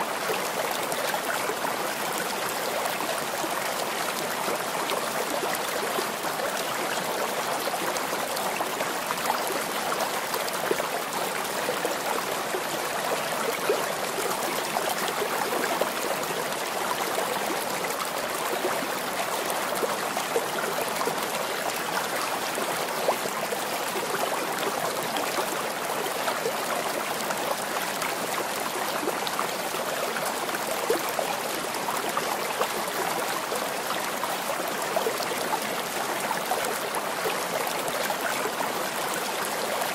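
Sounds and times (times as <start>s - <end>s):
running water stream: 0.0s - 39.9s.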